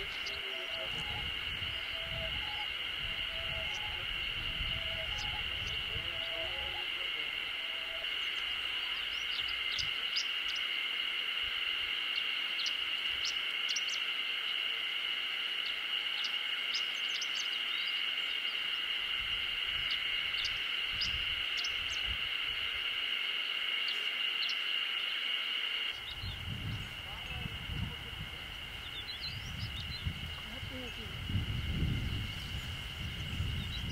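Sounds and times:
bird chirping phrases: 0.0 - 10.7, 15.6 - 18.7, 25.9 - 33.9
high-pitched insect drone: 0.0 - 33.9.

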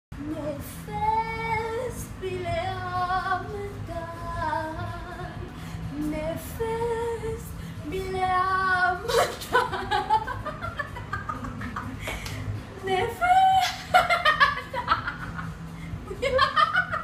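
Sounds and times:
woman singing: 0.2 - 10.0, 12.8 - 14.0.

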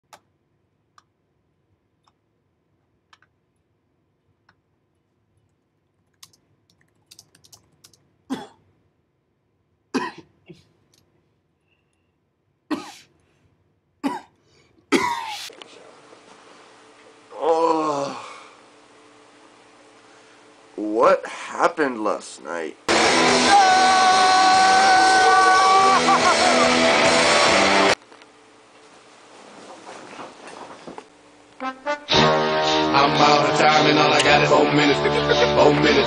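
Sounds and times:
faint clicks: 4.4 - 8.0
man coughing: 8.3 - 8.6, 9.9 - 10.7, 12.7 - 13.1, 14.0 - 15.5.

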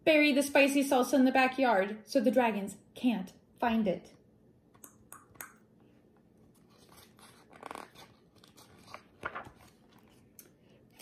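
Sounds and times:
page rustling as turned: 6.4 - 11.0.

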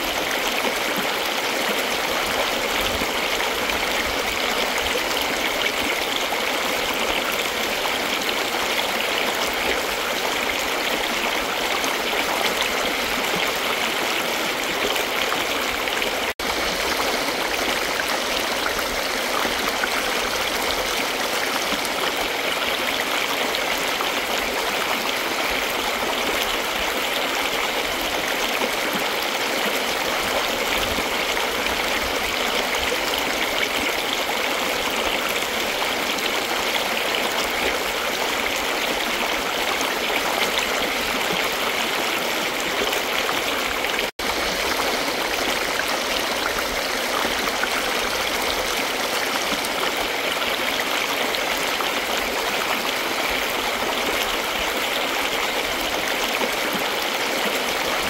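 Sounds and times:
stream babbling over stones: 0.0 - 58.0.

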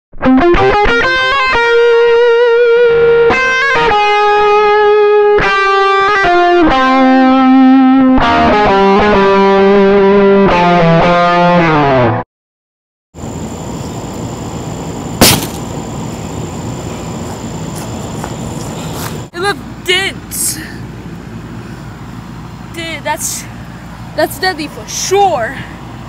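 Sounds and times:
distorted electric guitar: 0.1 - 12.2.

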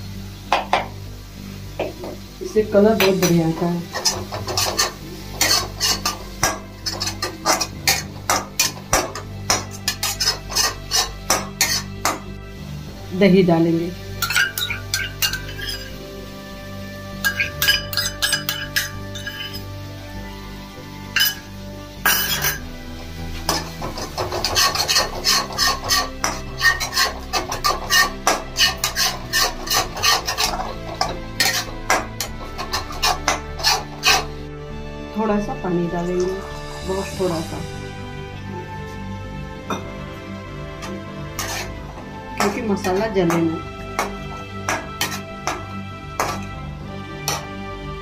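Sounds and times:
soft background music: 0.0 - 48.0
metal spatula scraping a metal pan: 3.0 - 12.3, 14.1 - 16.0, 17.0 - 19.8, 21.1 - 34.5, 40.8 - 46.6, 47.2 - 47.5.

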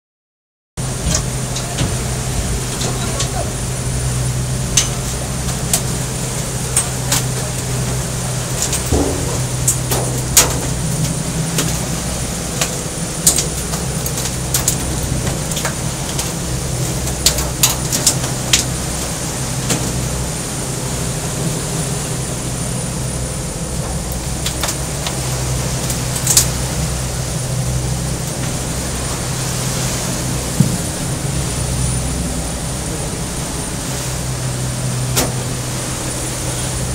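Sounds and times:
boat engine drone: 0.8 - 36.9
sharp clicks and knocks: 8.6 - 11.9.

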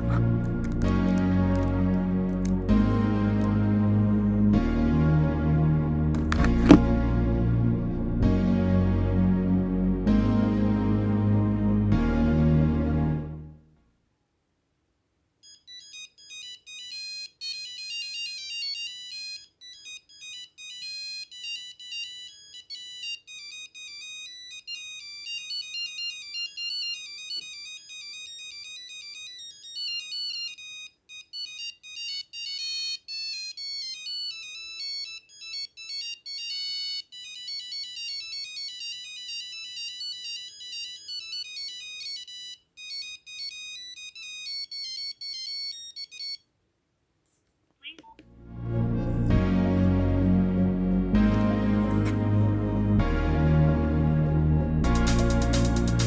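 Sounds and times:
phone ringtone beeping melody: 15.4 - 46.5.

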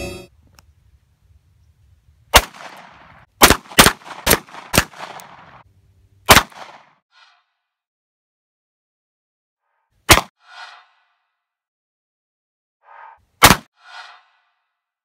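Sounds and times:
pistol shots with echo: 2.4 - 5.6, 6.3 - 6.9.

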